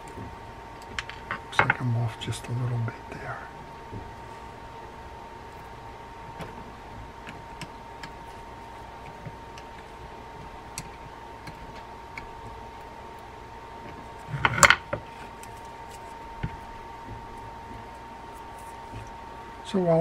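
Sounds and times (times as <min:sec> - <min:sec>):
reel clattering on wooden bench: 0:14.4 - 0:15.1.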